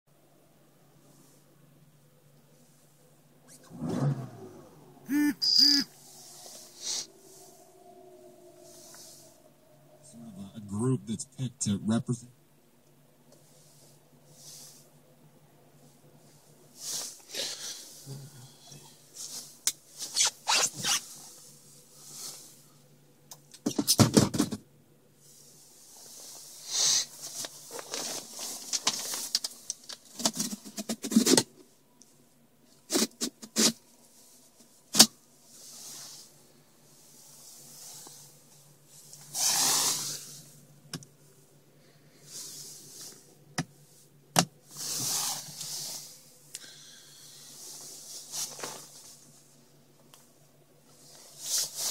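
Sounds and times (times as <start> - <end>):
faint low hum: 0.1 - 20.1.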